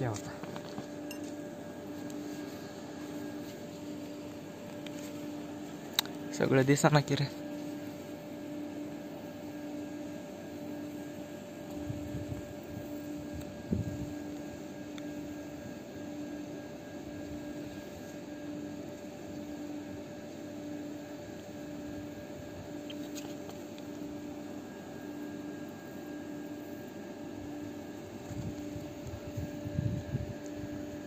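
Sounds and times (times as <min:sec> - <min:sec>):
distant machine hum: 0:00.0 - 0:11.0.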